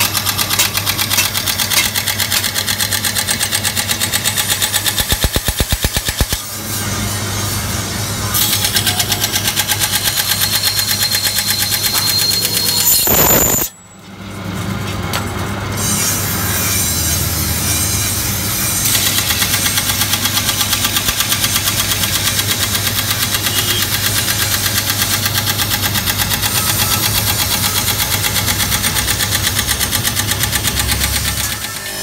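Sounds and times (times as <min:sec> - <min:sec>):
grinding machine hum: 0:00.0 - 0:25.2.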